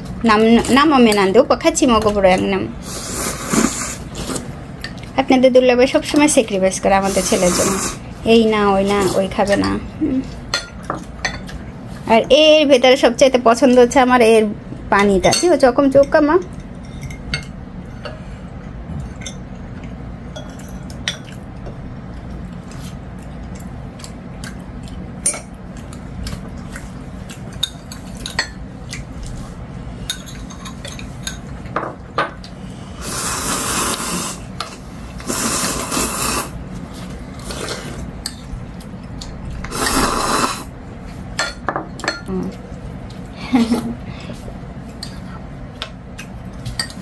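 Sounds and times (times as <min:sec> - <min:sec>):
slurping: 0:02.8 - 0:04.5, 0:33.0 - 0:34.5, 0:35.2 - 0:36.6, 0:39.6 - 0:40.7.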